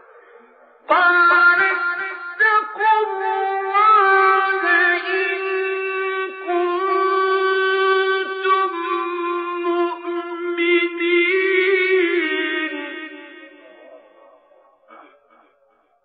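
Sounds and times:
man chanting melodically: 0:00.0 - 0:15.9.

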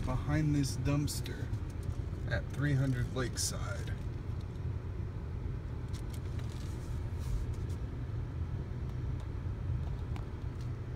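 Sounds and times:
car engine and tyres rumbling: 0:00.0 - 0:10.9.

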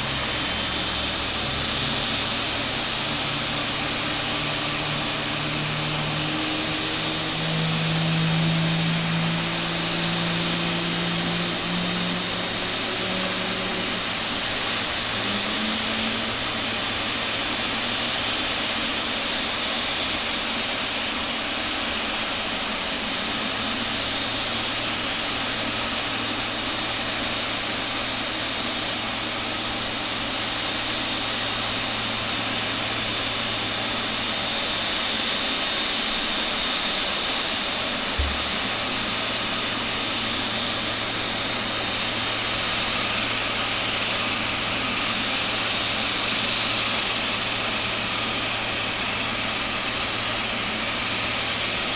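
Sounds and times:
jet engine whine and rumble: 0:00.0 - 0:51.9
short low thump: 0:38.2 - 0:38.8.

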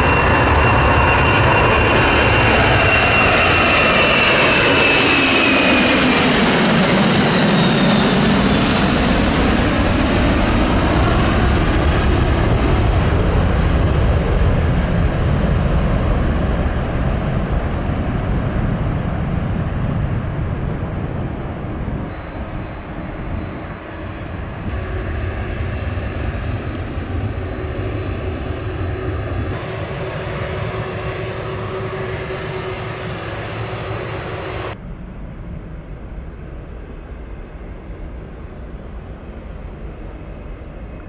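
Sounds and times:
jet engines roaring past: 0:00.0 - 0:41.0
steady engine hum: 0:18.5 - 0:41.0.

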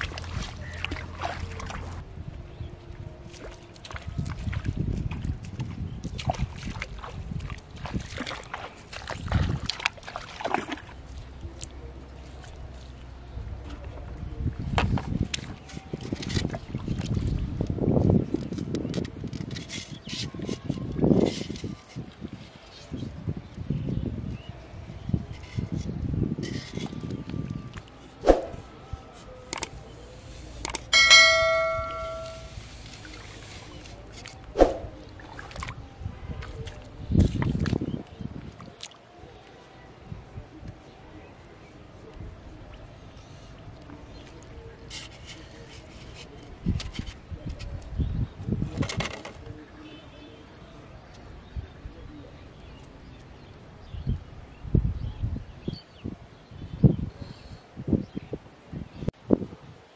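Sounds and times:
water splashing around wading legs: 0:00.0 - 0:02.0, 0:03.3 - 0:13.0, 0:30.9 - 0:39.1
bright bell ding: 0:30.9 - 0:32.6.

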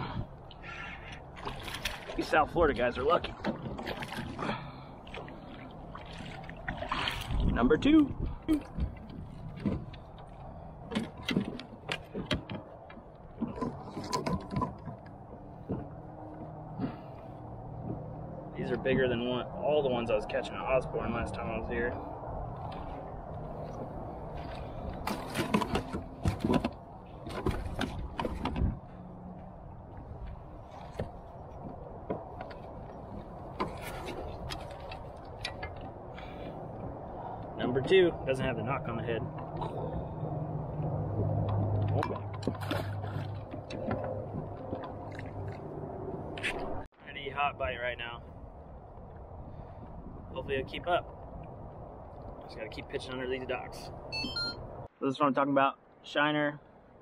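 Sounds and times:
fishing gear clicks and knocks: 0:08.4 - 0:16.7, 0:22.6 - 0:37.5, 0:40.6 - 0:46.8
knocks and clicks of gear handling: 0:08.7 - 0:16.9, 0:24.8 - 0:28.9.

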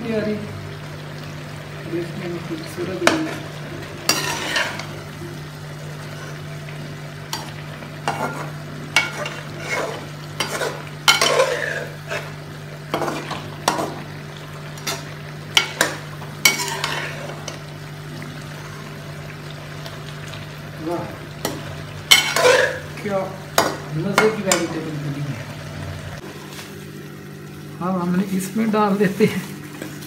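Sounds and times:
vegetables sizzling: 0:00.0 - 0:30.0
metal spoon scraping pot: 0:04.1 - 0:04.9, 0:22.1 - 0:22.8.

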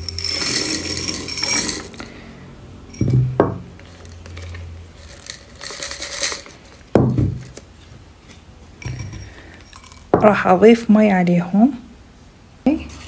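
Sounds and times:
clay pebbles rattling into glass jar: 0:00.0 - 0:02.1, 0:02.9 - 0:07.6, 0:08.8 - 0:10.1.

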